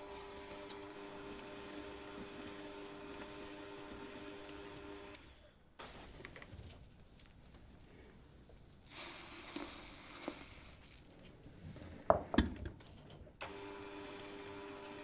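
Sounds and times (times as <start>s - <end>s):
electric hand mixer humming: 0.0s - 5.5s, 13.4s - 15.0s
sugar pouring into glass bowl: 8.8s - 11.2s.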